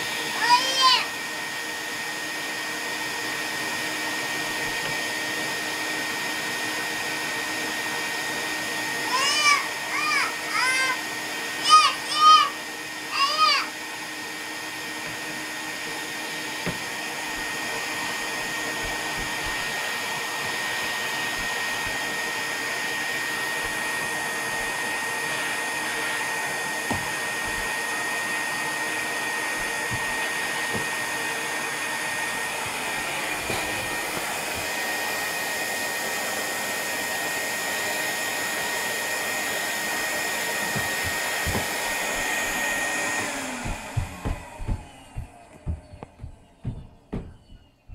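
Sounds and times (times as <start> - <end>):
vacuum cleaner running: 0.0 - 47.9
nozzle knocking on wooden floor: 40.7 - 41.8, 43.6 - 47.9.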